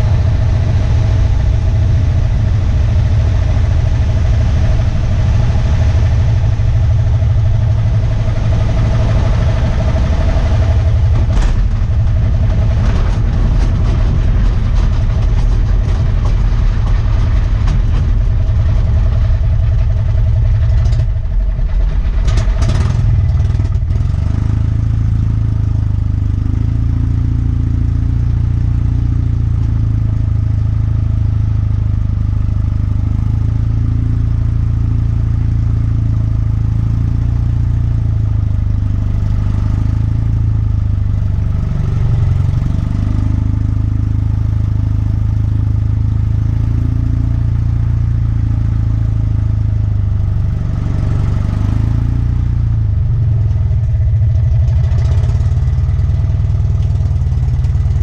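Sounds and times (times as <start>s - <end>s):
small plane engine running: 0.0s - 58.0s
clattering engine knocks: 6.2s - 26.7s, 47.7s - 58.0s.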